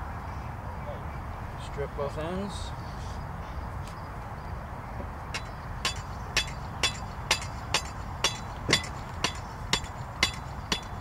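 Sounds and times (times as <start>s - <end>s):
hammer blows ringing: 5.4s - 11.0s.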